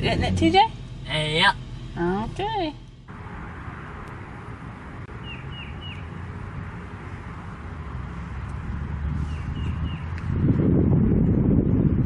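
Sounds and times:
low rumble and hiss: 0.0s - 5.0s
small bird chirping: 5.2s - 6.2s.

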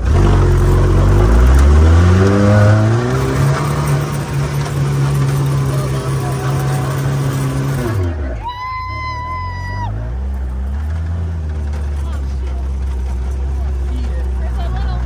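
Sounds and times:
off-road vehicle engine revving: 0.0s - 15.0s
rushing noise of the ride: 0.0s - 15.0s.

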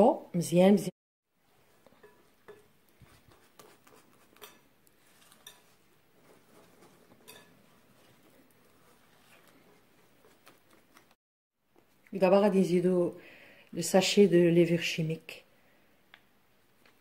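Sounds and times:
whisk scraping glass bowl: 2.0s - 10.4s.

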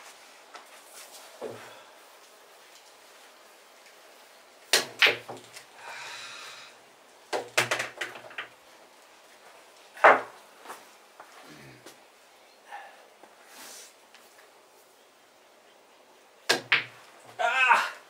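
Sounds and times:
billiard balls clacking: 7.4s - 8.6s.

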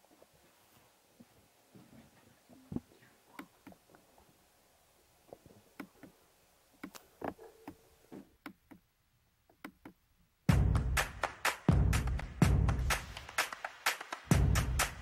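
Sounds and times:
faint clicks and taps: 5.3s - 6.2s, 6.8s - 8.9s.

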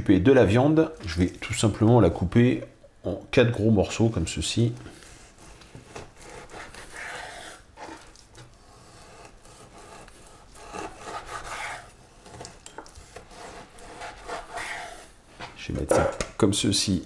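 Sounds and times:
knife cutting meat: 5.4s - 8.2s, 8.8s - 15.1s.

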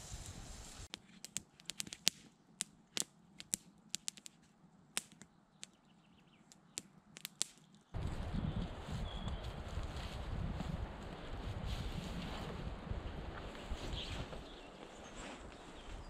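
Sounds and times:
campfire crackling: 0.0s - 5.8s, 6.4s - 13.4s.

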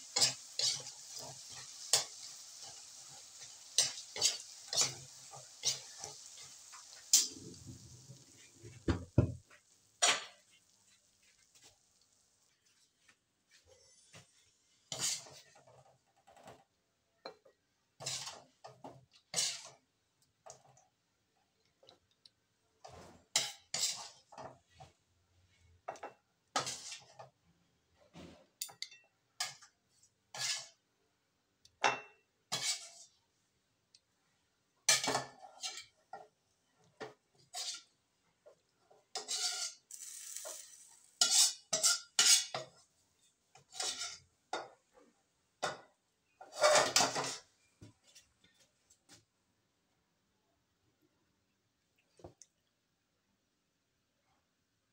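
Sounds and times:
metal ladle scraping a pot: 0.1s - 8.8s, 14.9s - 15.8s, 18.0s - 18.5s, 19.3s - 19.8s, 22.8s - 24.6s, 26.6s - 27.3s, 30.3s - 30.8s, 32.5s - 33.2s, 37.4s - 37.9s, 39.1s - 42.7s, 43.6s - 44.2s, 46.4s - 47.5s.

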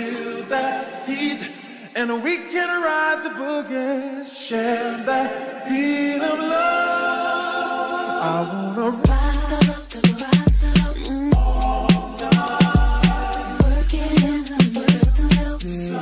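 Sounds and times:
voices singing in harmony: 0.0s - 2.7s, 3.3s - 16.0s
deep bass and drum hits: 9.1s - 14.4s, 15.0s - 15.6s.

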